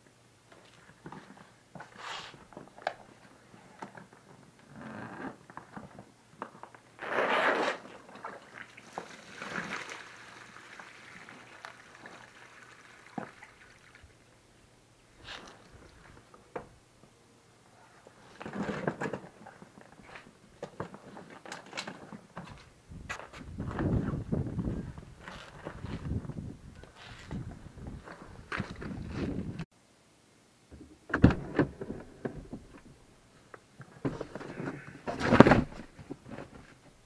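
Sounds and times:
water pouring onto ground: 8.2s - 14.2s.

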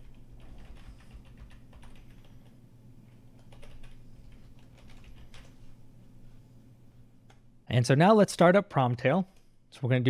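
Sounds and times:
computer keyboard typing: 0.0s - 2.6s, 3.4s - 5.6s.

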